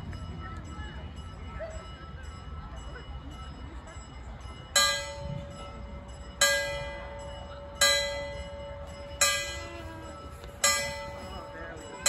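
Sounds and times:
railroad crossing bell ringing: 0.0 - 12.0.

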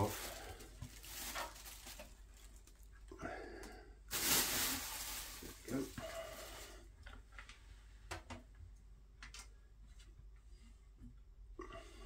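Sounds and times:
plastic wrapping rustling: 0.0 - 2.9, 4.1 - 6.8.

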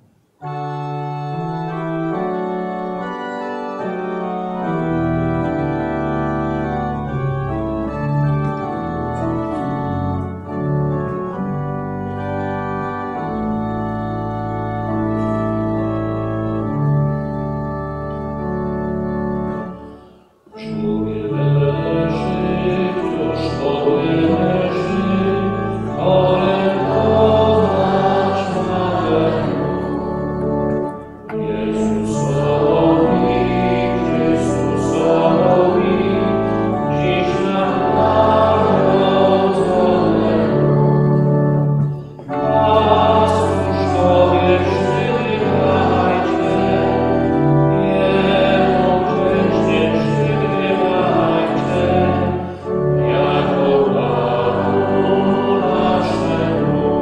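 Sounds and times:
church organ chords: 0.0 - 57.0
people singing: 20.6 - 41.3, 42.2 - 57.0.

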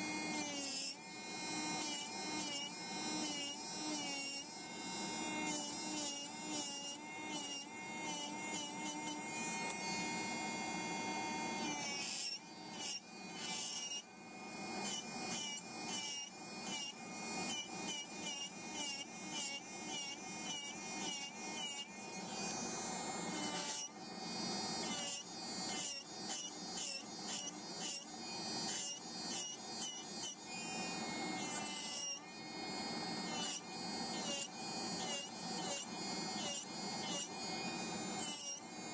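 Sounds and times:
electric nail drill whining: 0.0 - 38.9
drill bit grinding nails: 5.1 - 9.8, 11.6 - 14.0, 14.8 - 23.9, 24.7 - 38.6.

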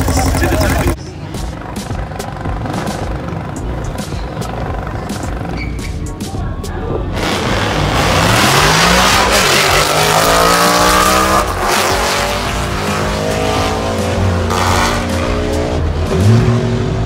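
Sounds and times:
drag cars accelerating: 7.1 - 17.0.

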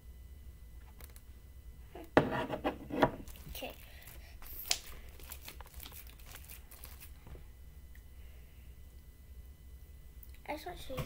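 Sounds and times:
slime clicking and crinkling: 3.3 - 7.2.

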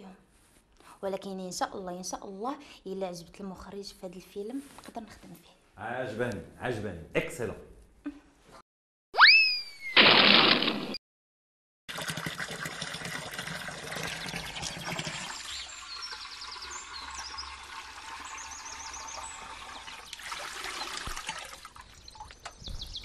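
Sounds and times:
water trickling into a jug: 11.9 - 22.7
birds chirping: 14.2 - 21.0, 21.8 - 23.0.

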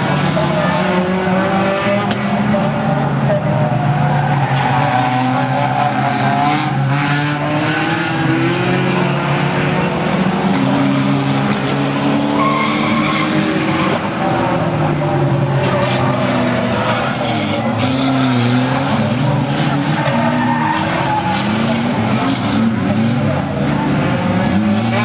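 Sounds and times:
racing car engines revving: 0.0 - 25.0
tyres skidding: 0.0 - 25.0.

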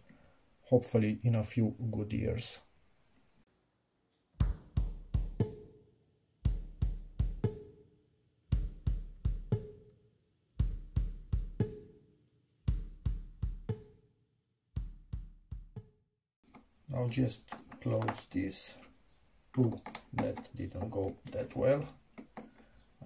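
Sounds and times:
heavy drum beat: 4.4 - 5.6, 6.5 - 7.6, 8.5 - 9.7, 10.6 - 11.8, 12.7 - 13.9, 14.8 - 15.9.

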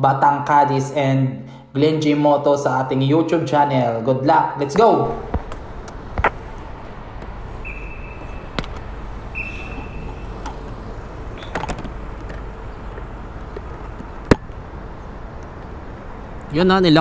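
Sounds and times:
motor scooter rumble: 5.1 - 16.7
short high electronic beeps: 9.4 - 10.1.

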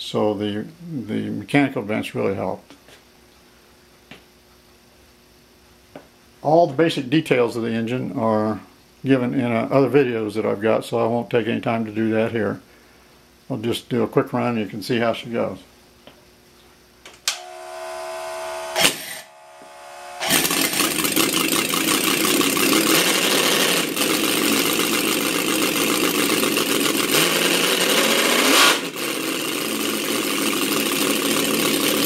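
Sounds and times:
model engine cranking: 20.2 - 32.0
model engine idling roughly: 20.2 - 32.0.

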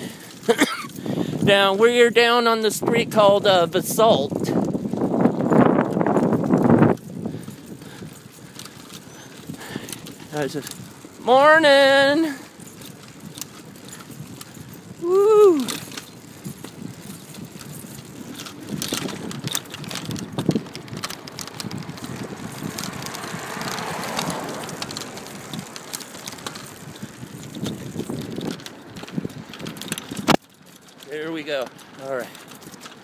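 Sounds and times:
bicycle clicks and rattles: 0.0 - 33.0
bicycle tyre and wind noise: 0.0 - 33.0
person shouting: 15.0 - 15.8.

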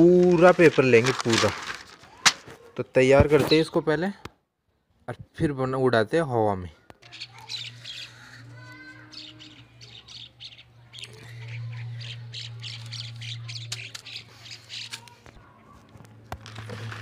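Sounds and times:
newspaper rustling: 0.0 - 2.6, 16.4 - 17.0
birds squawking and chirping: 6.8 - 15.4.

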